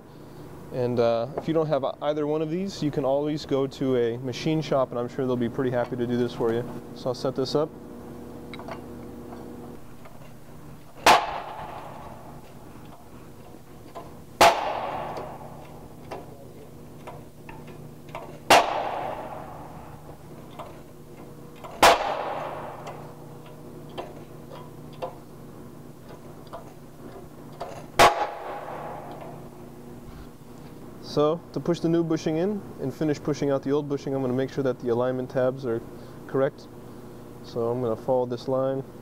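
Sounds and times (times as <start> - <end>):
loud sharp bangs from press: 10.9 - 12.5, 14.4 - 16.0, 18.4 - 20.2, 21.6 - 23.2, 27.9 - 29.5.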